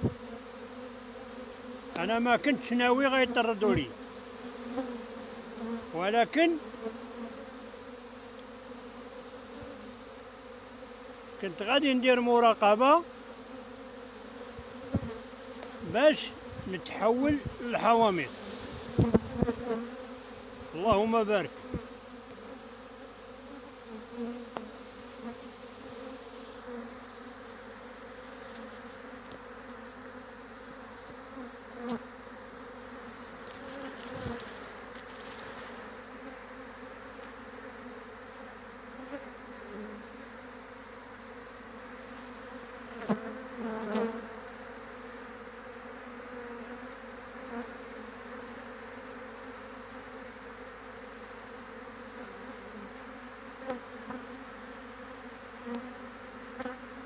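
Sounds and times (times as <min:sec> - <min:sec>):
bee swarm buzzing: 0:00.0 - 0:57.0.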